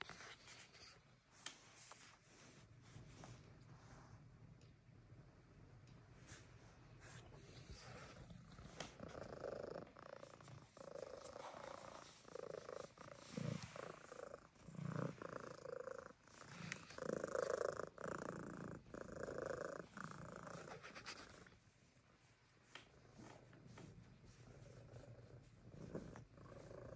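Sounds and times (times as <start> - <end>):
cat purring: 2.3 - 26.9.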